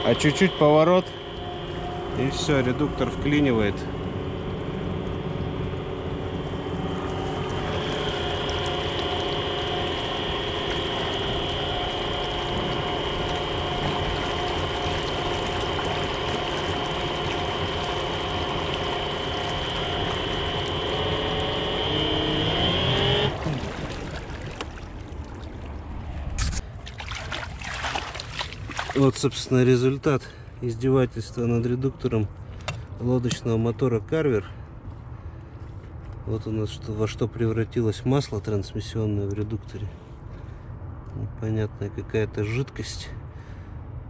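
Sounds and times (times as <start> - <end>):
electric outboard motor whining: 0.0 - 26.2.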